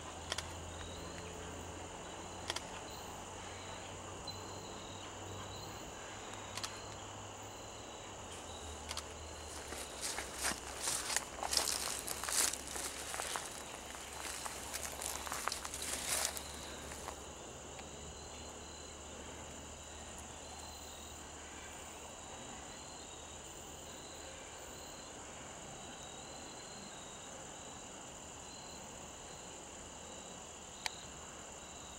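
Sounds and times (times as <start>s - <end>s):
insects trilling: 0.0s - 31.9s
rustling crackle: 9.4s - 17.2s.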